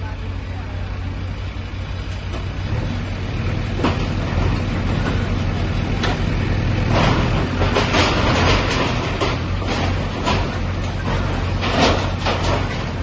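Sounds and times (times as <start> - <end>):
diesel engine running: 0.0 - 13.0
crunching clatter of debris: 3.6 - 13.0.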